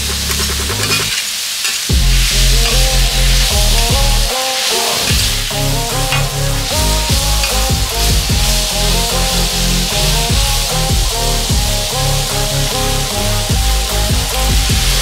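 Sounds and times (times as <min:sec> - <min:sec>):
food sizzling on griddle: 0:00.1 - 0:15.0
metal spatulas scraping: 0:00.3 - 0:01.9
background music: 0:01.9 - 0:15.0.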